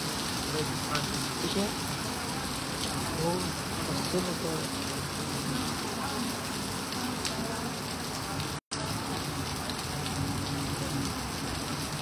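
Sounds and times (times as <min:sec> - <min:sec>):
heavy rain on standing water: 0:00.0 - 0:12.0.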